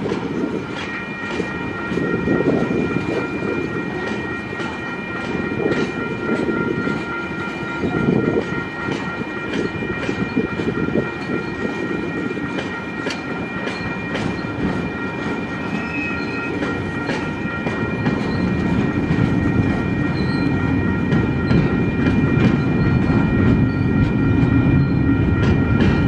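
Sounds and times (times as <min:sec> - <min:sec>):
freight train wagons rumbling: 0:00.0 - 0:26.0
high-pitched ringing tone: 0:00.0 - 0:26.0
train wheels clicking: 0:00.0 - 0:26.0.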